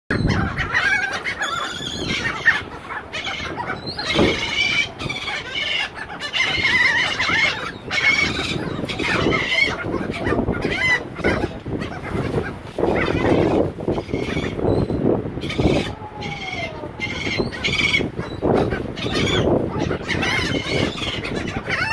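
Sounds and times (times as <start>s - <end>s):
gulls calling: 0.1s - 21.9s.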